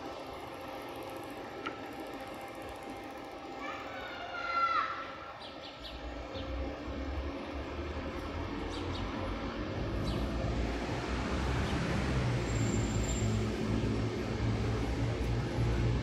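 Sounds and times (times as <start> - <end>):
road traffic hum: 5.4 - 16.0
vehicle engine: 5.8 - 16.0.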